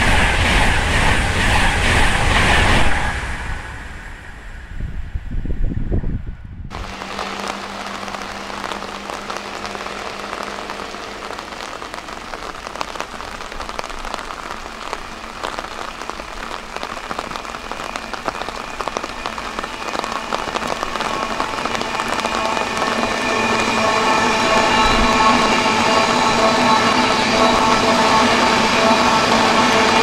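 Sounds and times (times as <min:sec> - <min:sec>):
rain pattering: 0:06.7 - 0:30.0.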